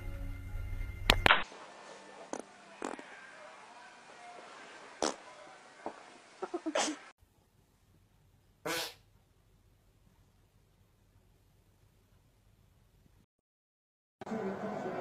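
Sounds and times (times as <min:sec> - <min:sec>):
cat hissing: 0:06.4 - 0:07.1, 0:08.6 - 0:09.0.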